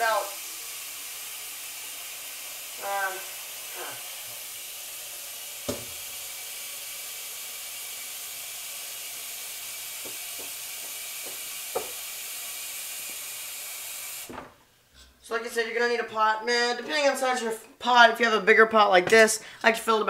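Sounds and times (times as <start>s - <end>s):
tap water filling pot: 0.0s - 14.5s
pot knocking: 5.7s - 6.0s, 10.0s - 12.0s.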